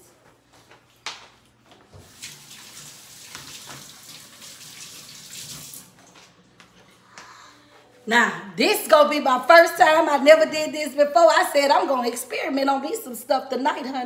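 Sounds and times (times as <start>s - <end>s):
faucet water running: 2.0s - 6.1s.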